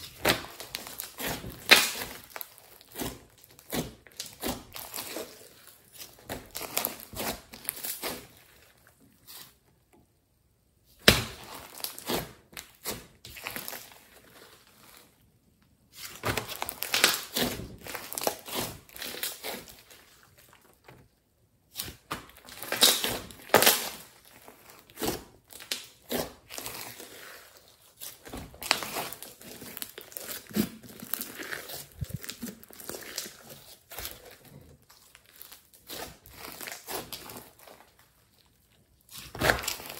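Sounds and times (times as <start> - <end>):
slime squishing and popping: 0.0 - 8.4, 28.0 - 38.0, 39.1 - 39.9.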